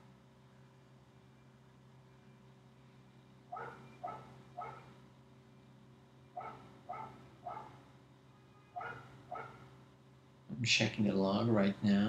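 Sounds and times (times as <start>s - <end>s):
faint dog barking: 3.5s - 5.0s, 6.4s - 7.8s, 8.4s - 9.7s.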